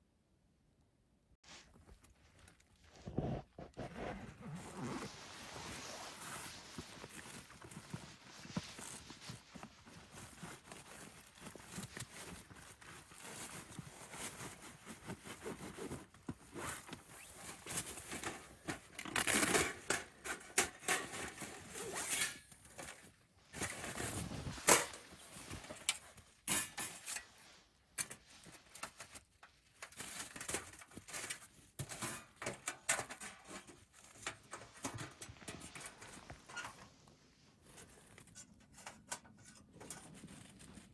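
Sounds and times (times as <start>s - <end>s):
nylon fabric and backpack rustling: 1.4s - 20.2s, 21.0s - 30.3s.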